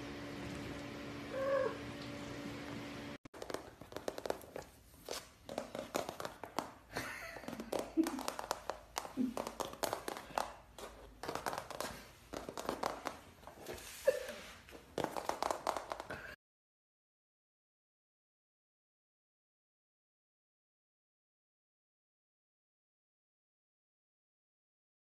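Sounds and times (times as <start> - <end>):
kitten paws tapping and scuffing: 3.4 - 16.4.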